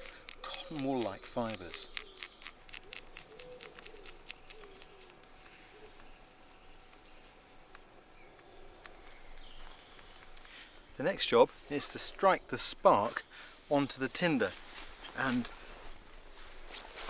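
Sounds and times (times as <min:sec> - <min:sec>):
blade scraping fungus: 0:00.0 - 0:05.6
faint birds calling: 0:00.0 - 0:17.0.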